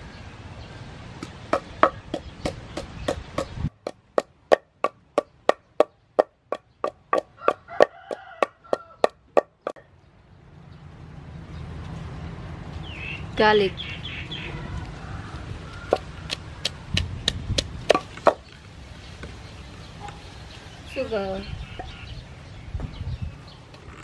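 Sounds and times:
pestle pounding in wooden mortar: 0:01.2 - 0:09.8, 0:15.9 - 0:18.5.

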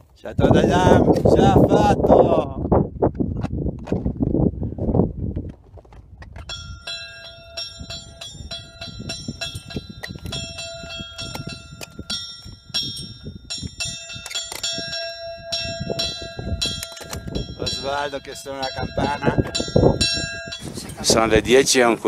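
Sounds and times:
metal bell clanging: 0:06.4 - 0:21.7.

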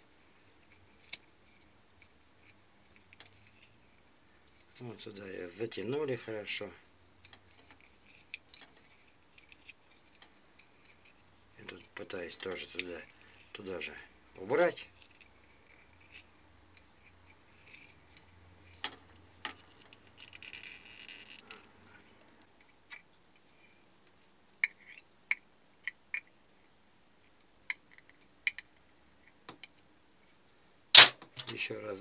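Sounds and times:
scratchy rustle: 0:00.3 - 0:22.2.

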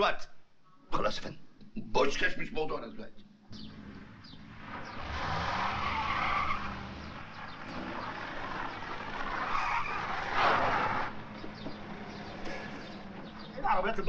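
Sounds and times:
car engine running: 0:03.5 - 0:14.0
tyres skidding on gravel: 0:03.6 - 0:14.0.

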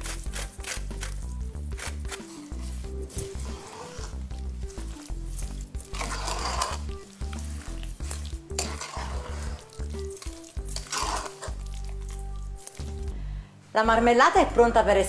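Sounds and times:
background music: 0:00.0 - 0:15.0
spoon scraping pot: 0:02.0 - 0:13.1.

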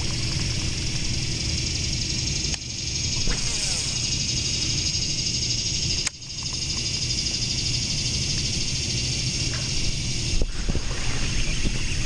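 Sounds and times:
frogs calling: 0:00.0 - 0:12.0
insects calling: 0:00.0 - 0:12.0.

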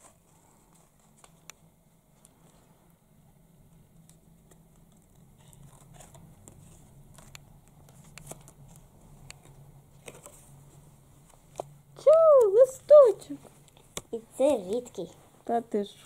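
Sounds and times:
low background hum: 0:00.0 - 0:16.0
paper and tape crinkling: 0:04.5 - 0:10.6.

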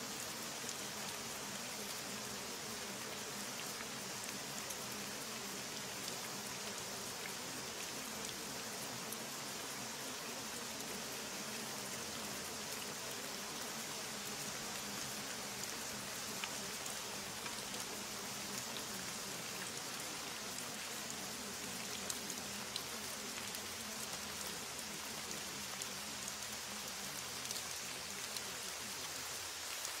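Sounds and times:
steady rain falling: 0:00.0 - 0:30.0.

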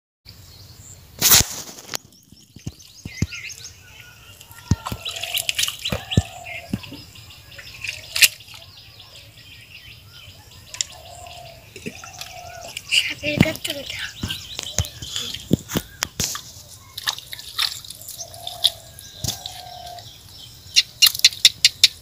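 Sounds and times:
small birds chirping: 0:01.6 - 0:22.0
hands squelching in wet mud: 0:04.4 - 0:08.7, 0:11.8 - 0:20.3.

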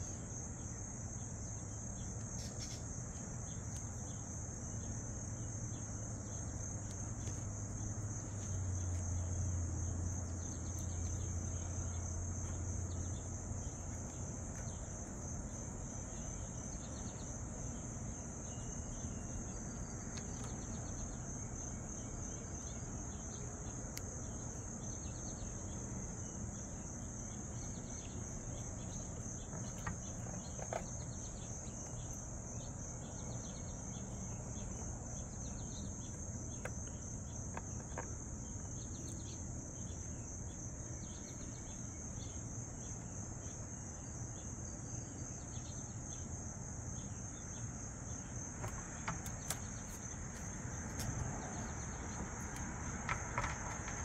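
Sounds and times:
insects chirring: 0:00.0 - 0:54.0
clicks and taps on board: 0:52.6 - 0:54.0.

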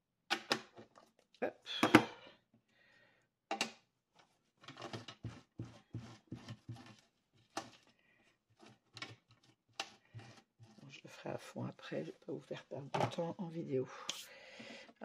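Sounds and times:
stamp rubbing and scraping on cloth: 0:05.2 - 0:07.0.

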